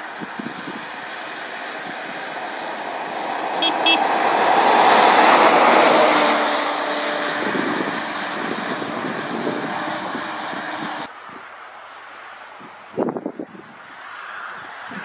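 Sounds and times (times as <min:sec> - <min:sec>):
tyre hiss on wet road: 0:00.0 - 0:10.8
lorry engine: 0:00.8 - 0:11.1.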